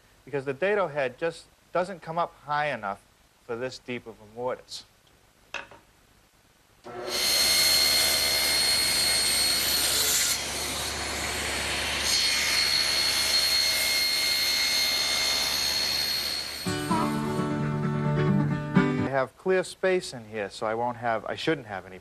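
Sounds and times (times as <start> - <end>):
table saw cutting wood: 6.9 - 17.4.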